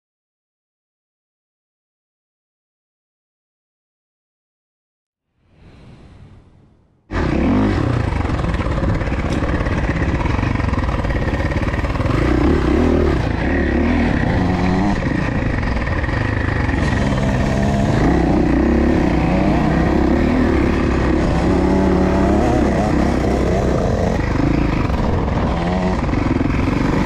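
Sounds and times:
dirt bike engine revving: 7.1 - 27.0.

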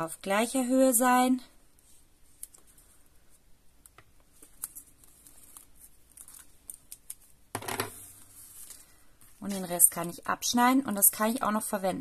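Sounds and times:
tape clicks and crinkles: 3.8 - 7.4.

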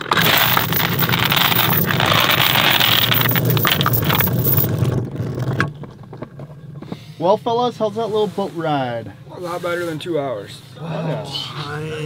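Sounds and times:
anchor chain rattling: 0.0 - 5.0.

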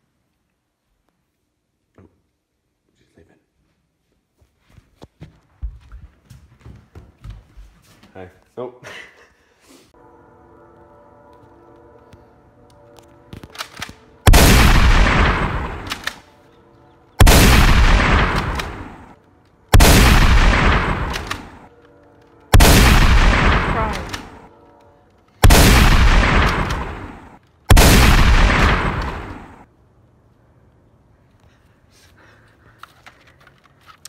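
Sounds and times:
gunshots with echo: 14.3 - 16.2, 17.2 - 19.1, 19.7 - 21.7, 22.5 - 24.5, 25.4 - 29.6.

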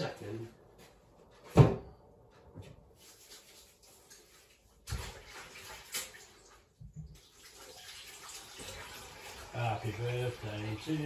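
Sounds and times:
water running from tap: 3.2 - 11.0.

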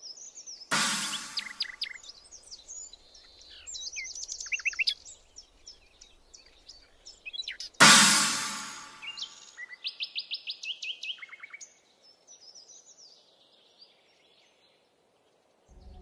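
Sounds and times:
loud noisy hit: 0.7 - 1.7, 7.8 - 9.2.

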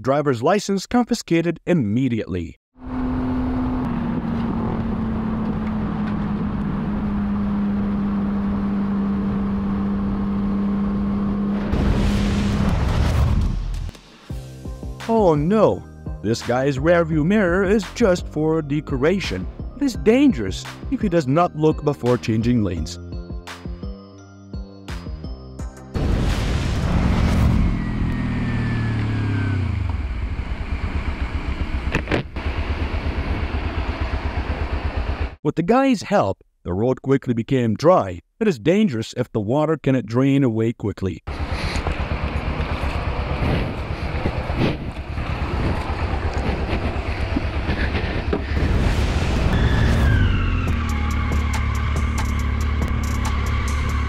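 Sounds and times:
motorcycle engine cruising: 2.8 - 11.9, 26.9 - 35.4, 41.3 - 54.0
wind and road rush: 2.8 - 14.0, 26.0 - 35.4, 41.3 - 54.0.

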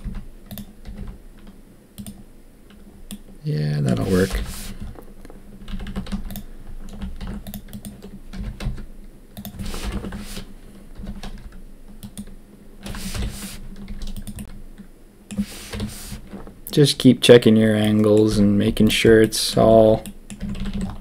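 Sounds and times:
keyboard keys clicking: 0.0 - 3.3, 5.6 - 14.6, 20.0 - 21.0.

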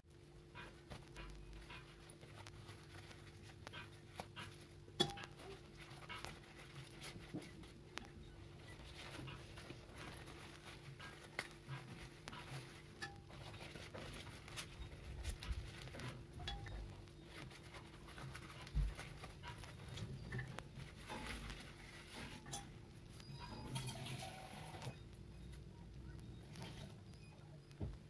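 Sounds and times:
leaves rustling and crinkling: 8.6 - 22.5.

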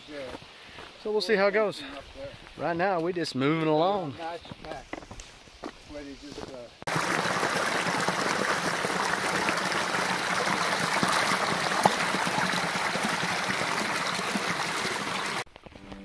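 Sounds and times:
stream splashing over rocks: 6.9 - 15.5.

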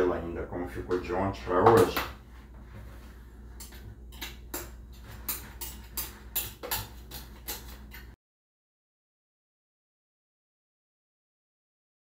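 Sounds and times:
utensil scraping a bowl: 2.2 - 8.2.

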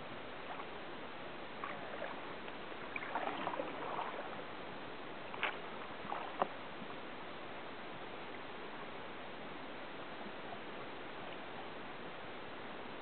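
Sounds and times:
paddle splashes and drips: 1.6 - 4.5, 5.3 - 6.6.

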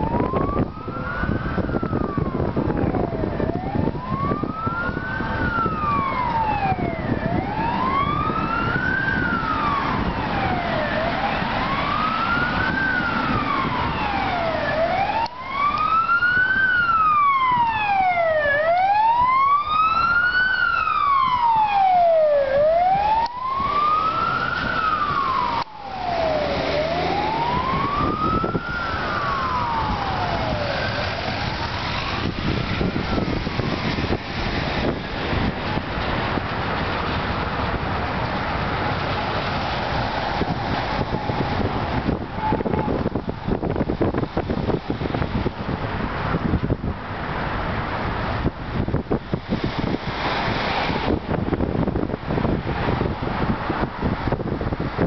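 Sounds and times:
higher wailing siren tone: 0.0 - 35.4
emergency siren wailing: 0.0 - 46.7
city traffic noise: 0.0 - 55.0.

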